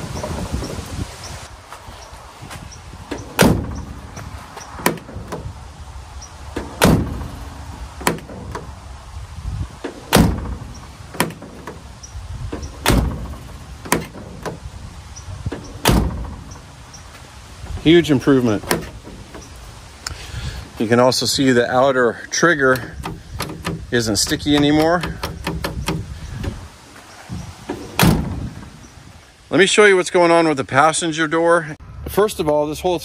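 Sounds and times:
steel door shutting: 0.0 - 1.4, 3.0 - 5.6, 6.2 - 8.8, 9.7 - 19.8, 22.4 - 26.6, 27.3 - 28.9.

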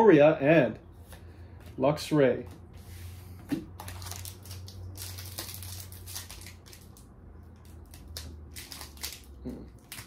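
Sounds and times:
steady low hum: 0.0 - 10.0
foil wrapper crinkling: 3.8 - 10.0.

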